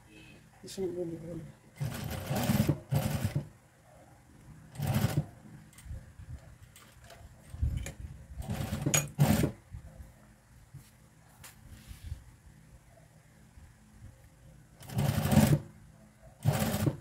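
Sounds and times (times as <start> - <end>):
sewing machine stitching: 1.8 - 3.5, 4.7 - 5.3, 8.4 - 9.6, 14.8 - 15.7, 16.4 - 17.0.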